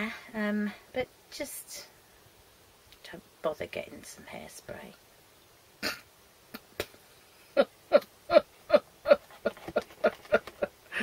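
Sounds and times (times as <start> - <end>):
woman laughing: 7.6 - 11.0.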